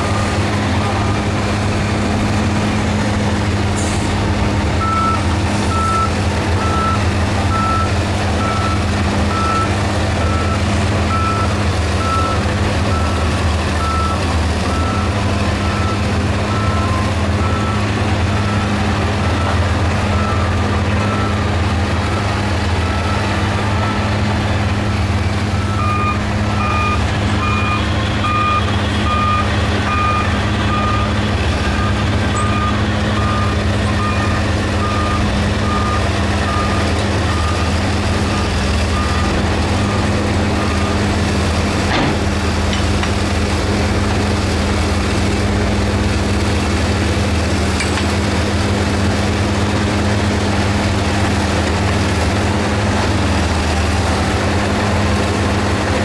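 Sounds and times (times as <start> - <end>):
heavy diesel machinery droning: 0.0 - 56.0
reversing alarm beeping: 4.8 - 24.1, 25.5 - 41.1.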